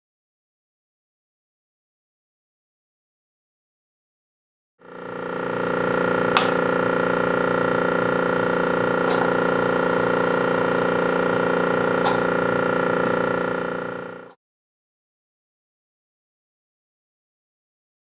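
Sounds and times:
electric motor hum: 4.8s - 14.4s
feed lever clacks: 9.0s - 9.4s, 12.0s - 12.4s.

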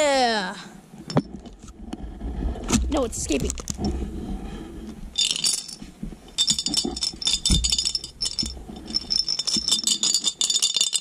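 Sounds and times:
rocks rattling in shaken container: 5.1s - 11.0s.

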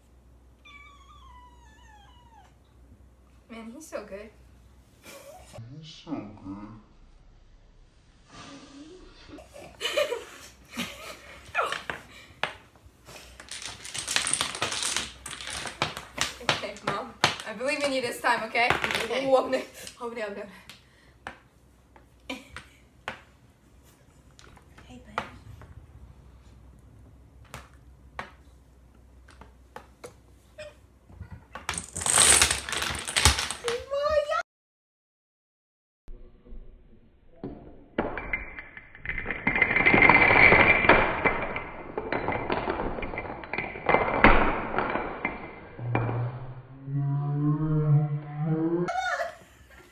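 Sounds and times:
giggling and laughter: 9.0s - 11.4s, 48.9s - 49.9s
dominoes clicking and clattering: 13.2s - 18.0s, 31.6s - 33.8s, 38.3s - 46.1s.

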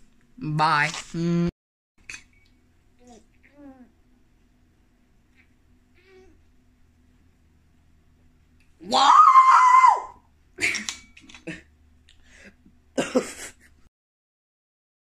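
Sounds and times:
man yelling: 8.8s - 10.2s
sharp cough: 13.0s - 13.5s.

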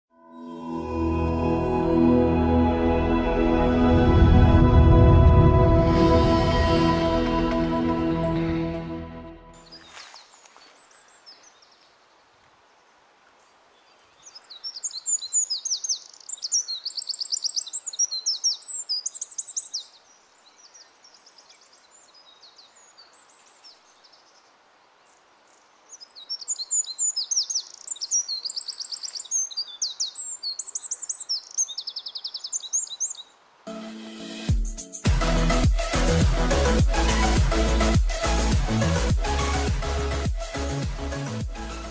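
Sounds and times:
wren singing high trills: 14.2s - 24.2s, 25.9s - 33.8s.

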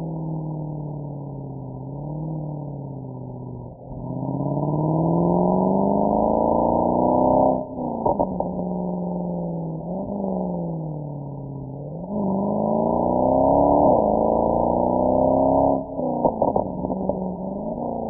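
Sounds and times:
car engine accelerating: 0.0s - 18.0s.

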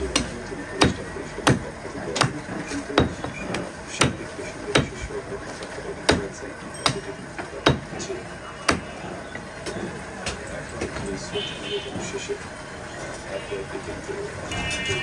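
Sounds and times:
cleaver chopping meat on wood: 0.0s - 9.0s.

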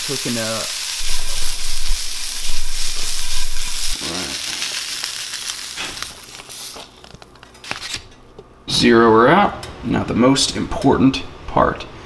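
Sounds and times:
food sizzling in a frying pan: 0.0s - 7.2s.

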